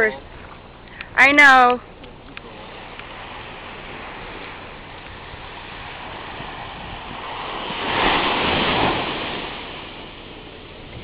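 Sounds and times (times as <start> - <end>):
wave breaking on shore: 2.4 - 11.0.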